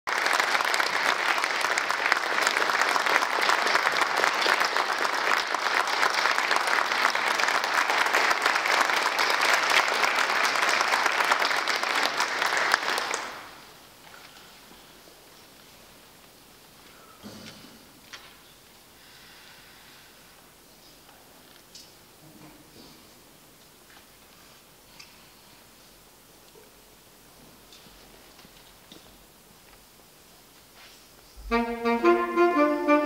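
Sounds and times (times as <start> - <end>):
audience applauding: 0.0 - 13.8.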